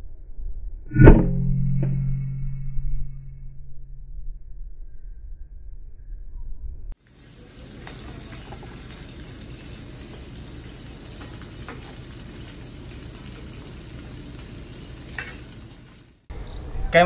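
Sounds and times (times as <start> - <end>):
meat sizzling in hot oil: 7.0 - 16.3.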